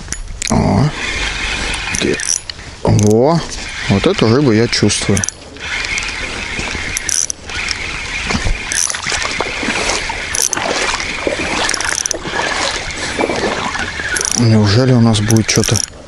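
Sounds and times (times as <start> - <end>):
fishing reel cranking with clicks: 1.2 - 3.1, 4.9 - 6.2, 6.8 - 8.0, 8.6 - 9.1, 10.3 - 10.6, 11.7 - 12.2, 14.2 - 14.6, 15.3 - 16.0.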